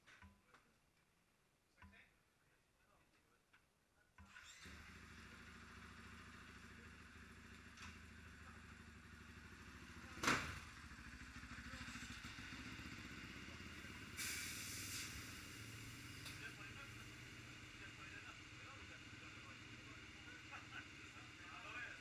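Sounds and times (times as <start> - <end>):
motorcycle engine running: 4.6 - 14.2, 15.1 - 22.0
motorcycle passing close by: 4.6 - 14.2.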